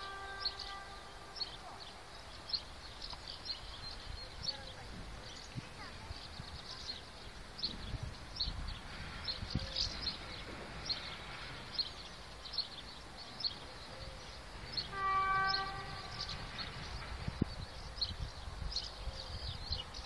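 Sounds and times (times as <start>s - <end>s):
train horn blast: 0.0s - 2.2s, 14.7s - 17.3s
low wind rumble: 0.0s - 20.0s.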